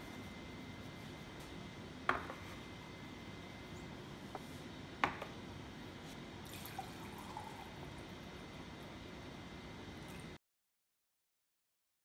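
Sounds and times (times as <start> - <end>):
ceramic bowl knocking on wood: 2.1 - 2.4.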